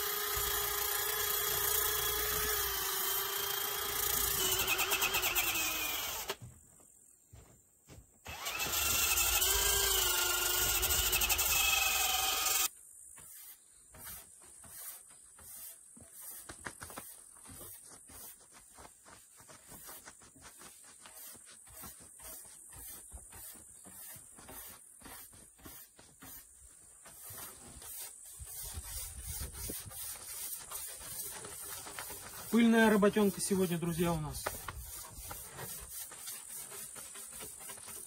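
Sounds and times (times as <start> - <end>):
sanding sponge rubbing wood: 13.2 - 18.5, 19.6 - 38.0.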